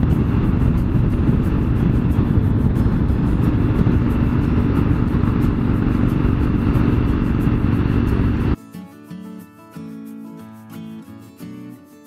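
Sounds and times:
motorcycle engine at speed: 0.0 - 8.6
wind rush: 0.0 - 8.6
acoustic guitar music: 0.0 - 12.0.

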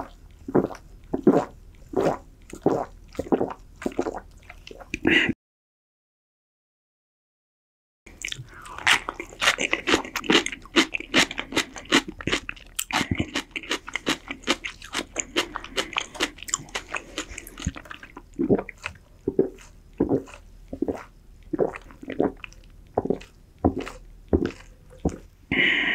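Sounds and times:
crunchy chewing and biting: 8.2 - 25.3.

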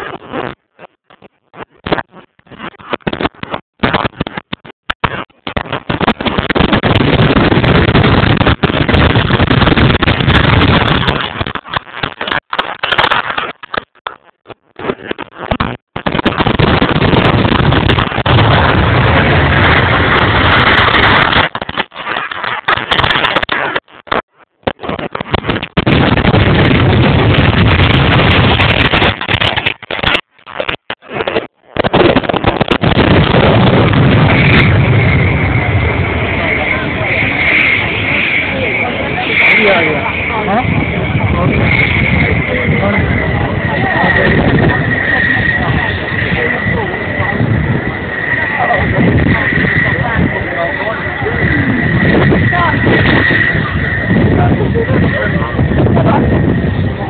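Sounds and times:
jet engines roaring distorted: 0.0 - 57.0.

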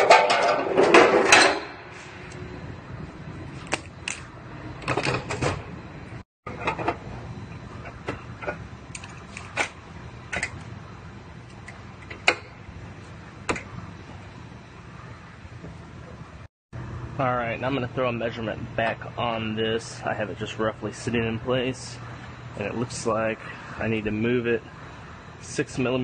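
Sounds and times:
steel rail clanking: 0.0 - 2.0.

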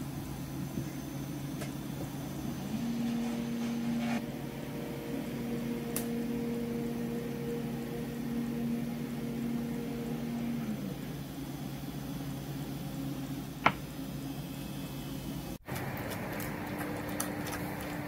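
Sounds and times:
kitchen appliance electrical hum: 0.0 - 18.0.

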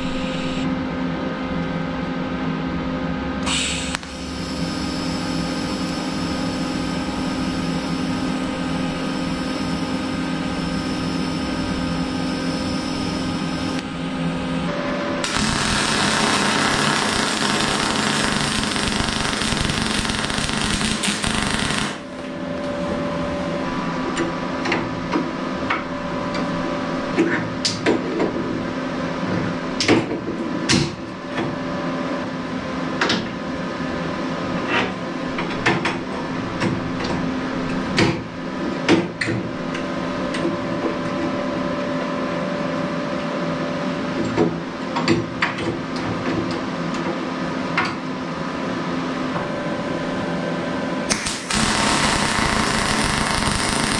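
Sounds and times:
arc welding crackle: 0.0 - 0.7, 3.7 - 6.0, 15.2 - 22.2, 51.1 - 53.9
steady hum: 0.0 - 24.2, 49.4 - 53.9.

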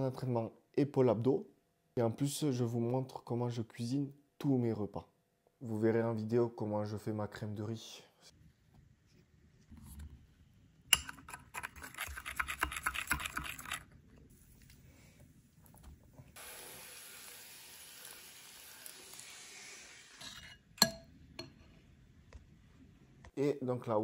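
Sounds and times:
spoon scraping a bowl: 10.9 - 13.9, 20.2 - 21.7
running water hiss: 16.4 - 20.2.

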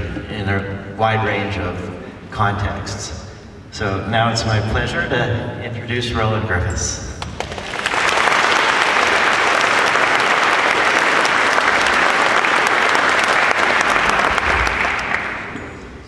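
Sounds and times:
audience applauding: 7.2 - 15.9.

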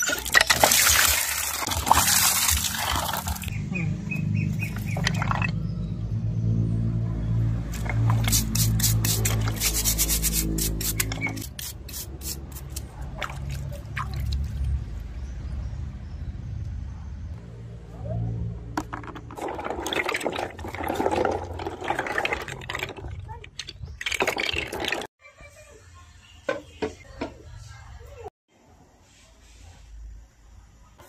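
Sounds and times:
water pouring and splashing: 0.0 - 3.5, 4.7 - 5.6, 12.7 - 14.8, 19.0 - 25.1.

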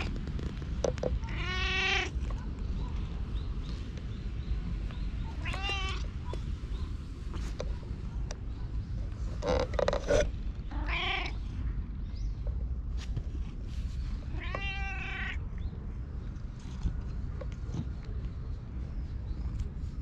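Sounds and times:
cat meowing: 1.2 - 2.1, 5.4 - 6.1, 10.7 - 11.4, 14.3 - 15.4.

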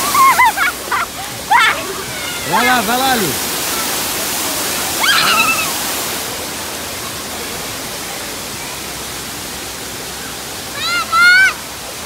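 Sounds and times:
waterfall rushing into pool: 0.0 - 12.0
child squealing: 1.5 - 2.5, 5.0 - 5.7.

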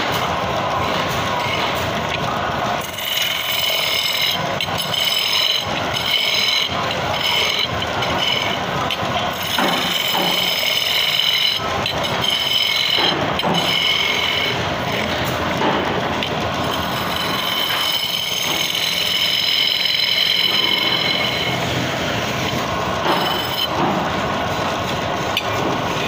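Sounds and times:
power tool cutting wood: 9.3 - 15.2, 16.6 - 21.8, 22.4 - 24.0
high-pitched squeal: 16.6 - 24.9.

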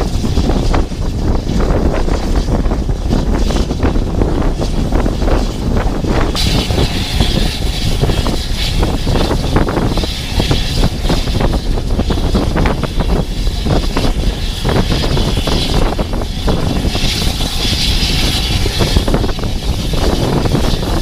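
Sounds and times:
train low rumble: 0.0 - 21.0
rushing air hiss: 4.5 - 21.0.

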